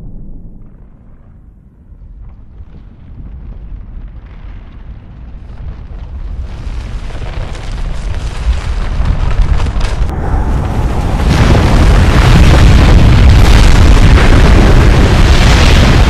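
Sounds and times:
deep rumbling roar: 9.2 - 16.0.

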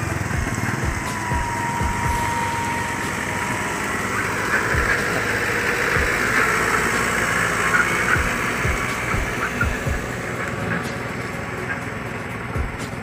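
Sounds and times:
low rumbles and thumps: 0.0 - 2.4, 7.7 - 10.7, 12.5 - 13.0
pickup truck engine driving past: 0.0 - 13.0.

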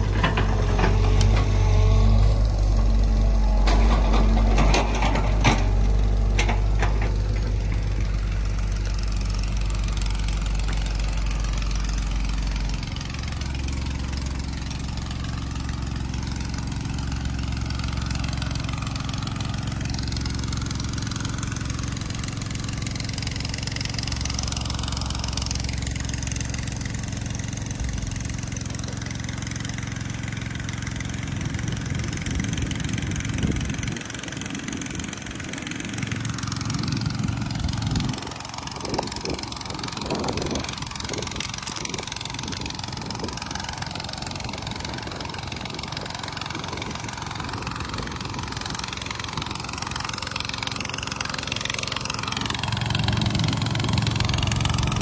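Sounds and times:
excavator diesel engine idling: 0.0 - 55.0
gusty low rumbling: 36.6 - 43.8.

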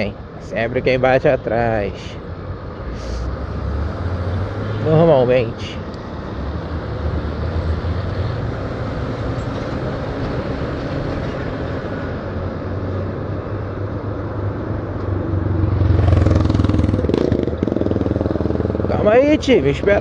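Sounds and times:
wind and road noise: 0.0 - 20.0
motorcycle engine running: 15.9 - 19.3.

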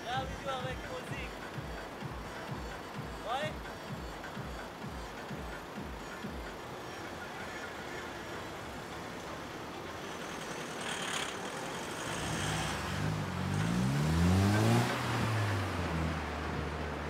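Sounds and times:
car accelerating past: 7.9 - 17.0.

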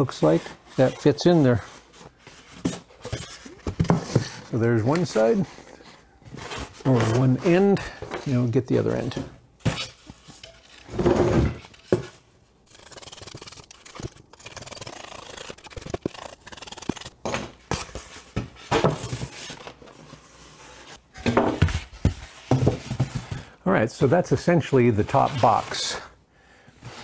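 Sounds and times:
knife scraping through foam: 12.7 - 17.1.

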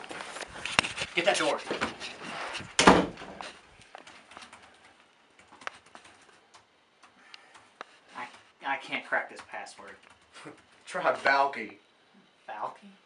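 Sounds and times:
rustling: 0.0 - 6.4
loud thump: 2.8 - 3.3
laptop keys typing: 3.9 - 8.4, 9.2 - 11.0.

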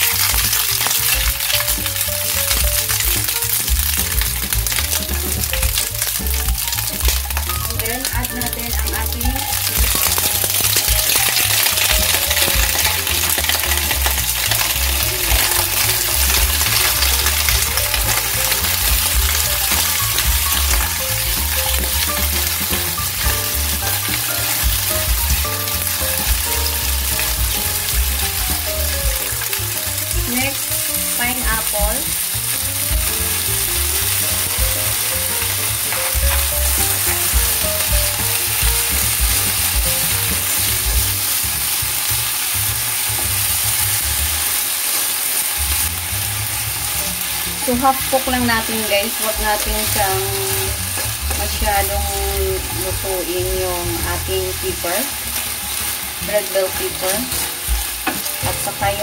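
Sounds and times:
spatula scraping and stirring: 0.0 - 30.6
vegetables sizzling in a frying pan: 0.0 - 59.0.

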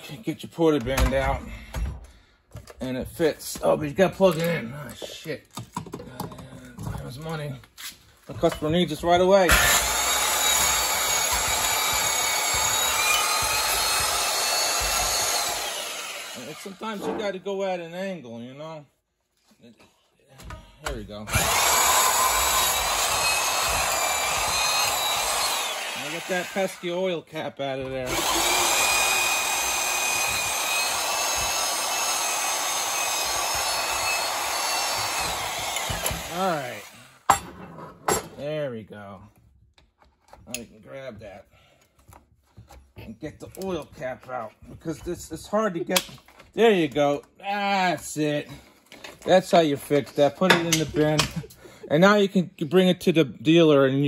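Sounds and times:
band saw cutting metal: 9.4 - 17.4, 21.2 - 27.2, 27.9 - 37.3.

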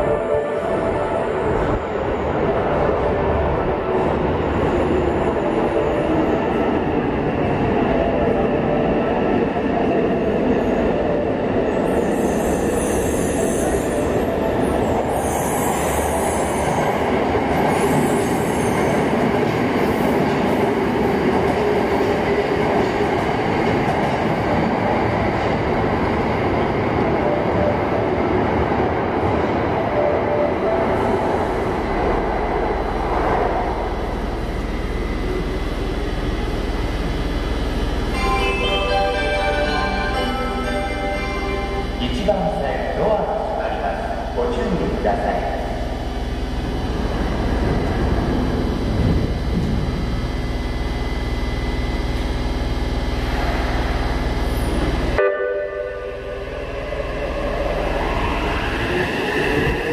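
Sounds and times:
train rumbling and braking: 0.0 - 59.9
high-pitched brake squeal: 11.8 - 14.2.

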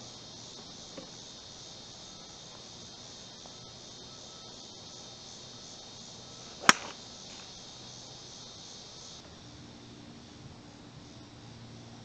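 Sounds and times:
high-pitched insect buzz: 0.0 - 9.2
golf club striking ball: 6.6 - 7.0.

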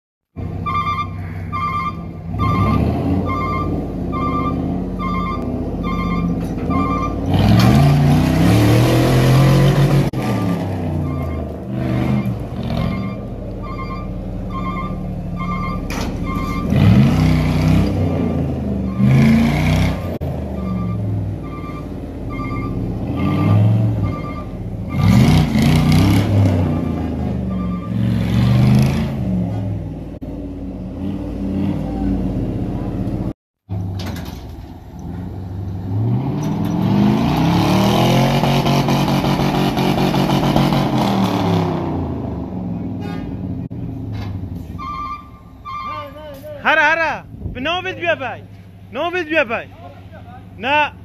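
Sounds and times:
vehicle engines revving: 0.4 - 51.0
truck reversing alarm beeps: 0.5 - 7.9, 10.2 - 17.2, 18.8 - 19.8, 20.4 - 25.4, 26.6 - 28.7, 44.8 - 46.2.

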